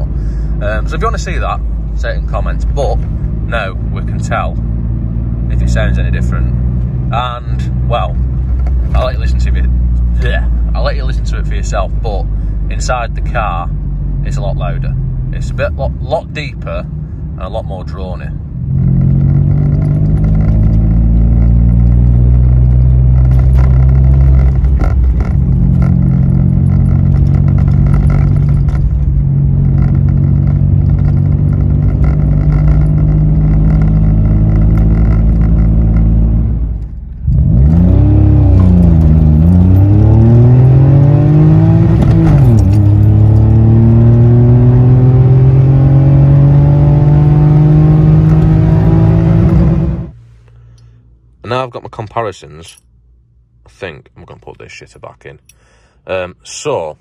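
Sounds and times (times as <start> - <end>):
car engine droning: 0.0 - 53.8.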